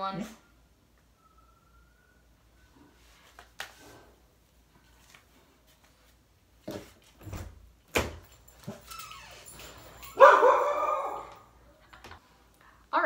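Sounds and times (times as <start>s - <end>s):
dog whining and barking: 8.6s - 11.6s.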